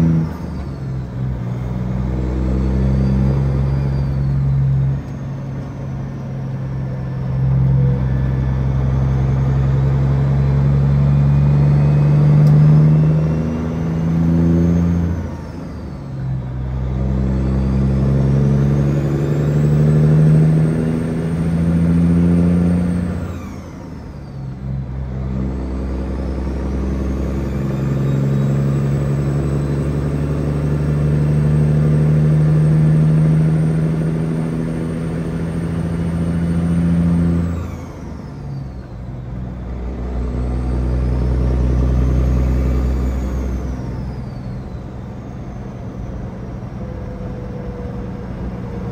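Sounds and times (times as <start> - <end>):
truck diesel engine accelerating: 0.0 - 48.9
faint high whistle: 2.1 - 6.3.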